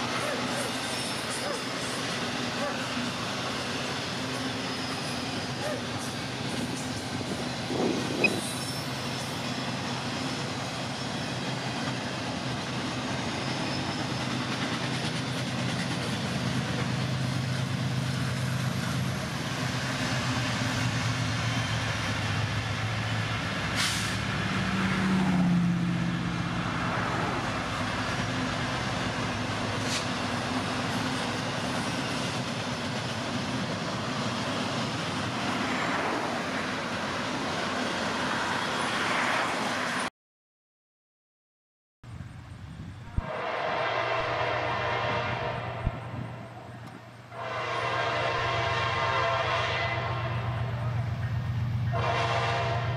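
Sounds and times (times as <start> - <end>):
locomotive engines droning: 0.0 - 39.9, 42.1 - 52.9
train wheels on rails: 0.0 - 40.1.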